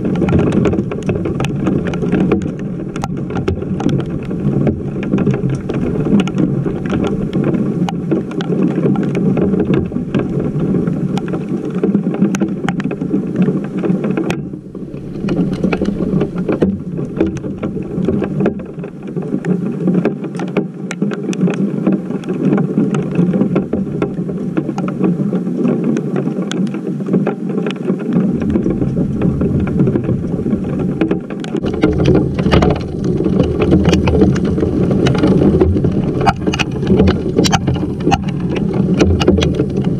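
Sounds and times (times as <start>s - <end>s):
heavy rain and hail pelting: 0.0s - 39.9s.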